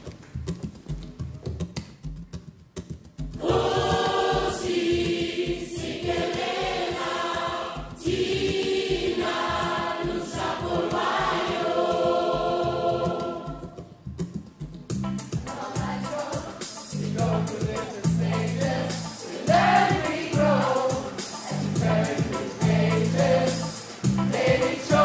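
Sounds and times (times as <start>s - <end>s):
choir singing long held notes: 3.4s - 13.8s, 15.4s - 25.0s.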